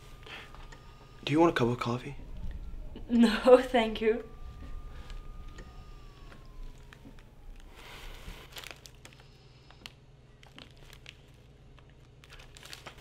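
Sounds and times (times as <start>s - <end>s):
low steady hum: 0.0s - 13.0s
paper rustling: 7.9s - 13.0s.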